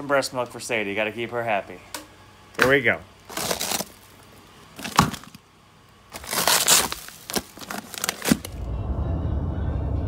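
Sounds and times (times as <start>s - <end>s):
plastic bags rustling: 3.2s - 8.6s
low road rumble: 8.5s - 10.0s.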